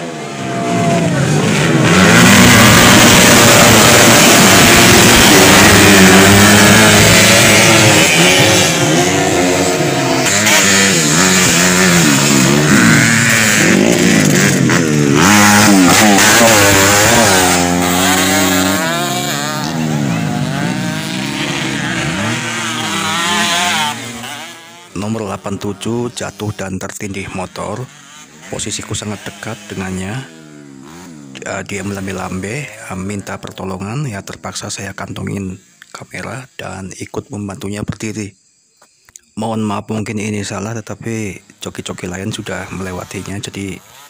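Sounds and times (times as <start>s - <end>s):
dirt bike engines revving: 0.0s - 35.9s, 41.3s - 44.0s.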